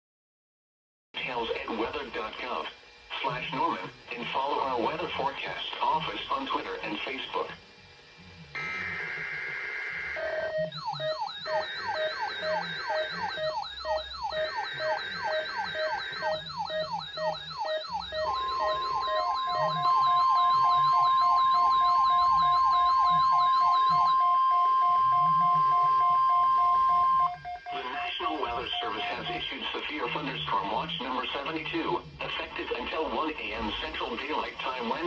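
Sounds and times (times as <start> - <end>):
buzzing digital header tones: 8.0 - 35.0
warbling siren alarms: 8.5 - 31.5
steady single-pitch alert tone: 8.6 - 31.4
repeated beeping: 10.2 - 31.2.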